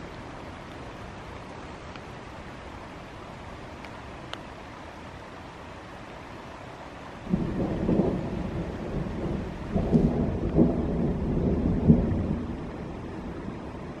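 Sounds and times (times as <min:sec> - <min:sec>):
mountain stream rushing: 0:00.0 - 0:09.8
rolling thunder rumble: 0:07.2 - 0:14.0.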